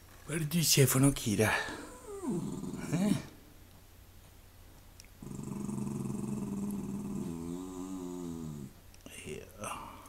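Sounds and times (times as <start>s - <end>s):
dog growling low: 1.7s - 3.3s, 5.2s - 8.8s.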